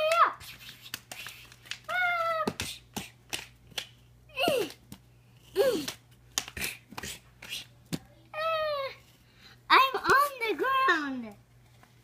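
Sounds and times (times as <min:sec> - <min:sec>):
girl crying out: 0:04.3 - 0:04.8, 0:08.4 - 0:09.0.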